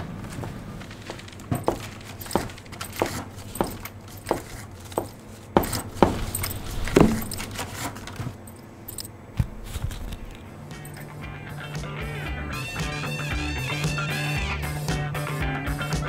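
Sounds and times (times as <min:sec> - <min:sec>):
low steady hum: 0:00.0 - 0:13.1
heeled footsteps on tiled floor: 0:00.3 - 0:07.9, 0:09.4 - 0:11.0.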